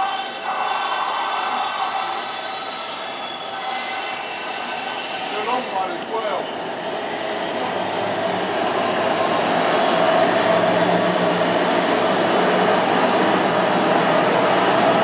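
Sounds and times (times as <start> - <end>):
diesel locomotive engine drone: 5.6 - 15.0.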